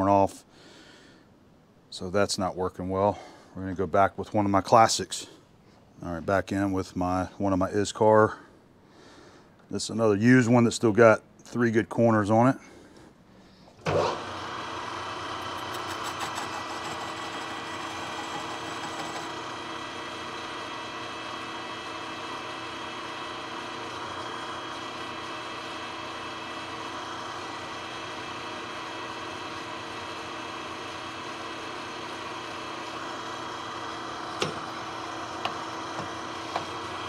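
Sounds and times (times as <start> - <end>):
lathe machine hum: 13.9 - 37.0
crackle of metal cutting: 15.3 - 19.9.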